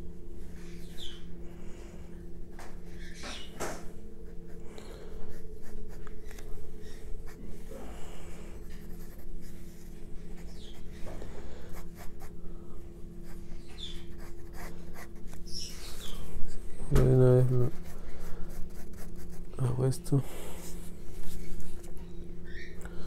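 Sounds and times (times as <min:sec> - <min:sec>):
steady low hum: 0:00.0 - 0:23.0
pencil sketching on paper: 0:05.2 - 0:06.3, 0:08.6 - 0:10.8, 0:13.2 - 0:15.4, 0:17.6 - 0:19.5.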